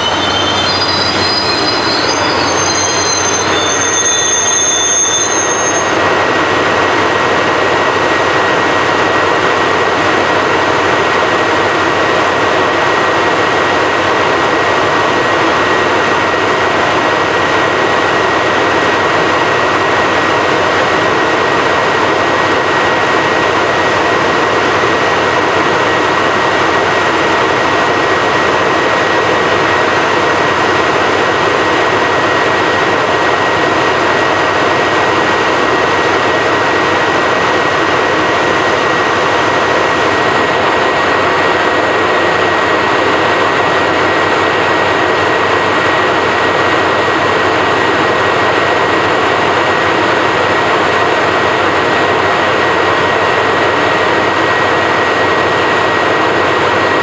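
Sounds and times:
thin high whine: 0.0 - 6.1
diesel locomotive engine idling: 0.0 - 57.0.

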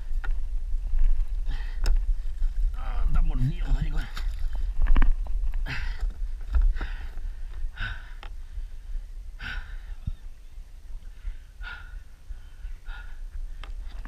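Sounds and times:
steady low rumble: 0.0 - 14.0
person breathing hard: 1.4 - 2.4, 5.6 - 10.2, 11.0 - 14.0.

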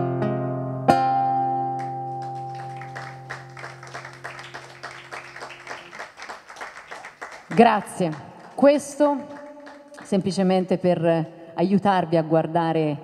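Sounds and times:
acoustic guitar chord ringing: 0.0 - 3.8
audience applause: 1.8 - 10.2.

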